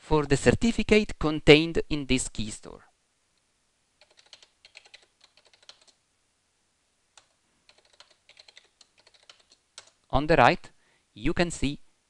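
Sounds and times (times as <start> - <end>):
faint keyboard typing: 3.4 - 6.0, 7.1 - 10.1.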